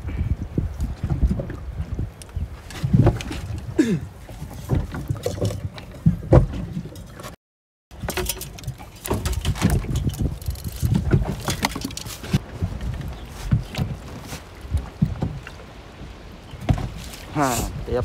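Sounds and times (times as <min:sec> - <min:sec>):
water sloshing and splashing: 0:00.8 - 0:18.0.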